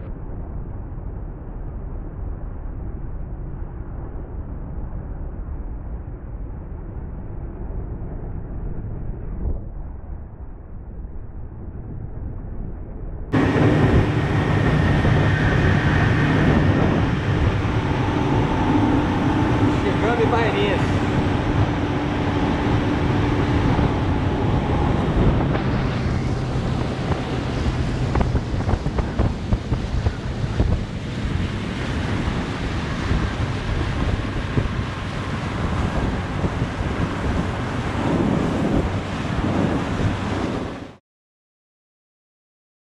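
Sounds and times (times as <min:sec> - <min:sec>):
wind buffeting microphone: 0:00.0 - 0:41.0
low motor hum: 0:07.2 - 0:40.8
water rushing along hull: 0:13.4 - 0:41.0.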